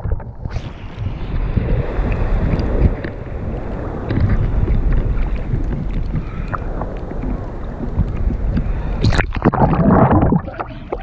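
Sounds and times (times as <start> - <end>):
muffled water sloshing and splashing: 0.0 - 11.0.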